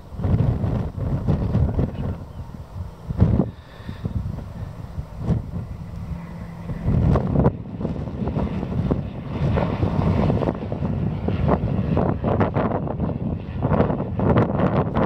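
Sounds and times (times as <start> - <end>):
propeller plane engine drone: 0.0 - 15.0
wind rumbling on microphone: 0.0 - 15.0.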